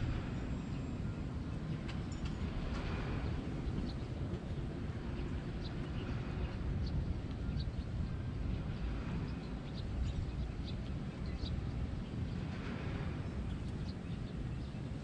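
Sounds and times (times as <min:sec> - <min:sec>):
small birds chirping: 0:03.3 - 0:12.5.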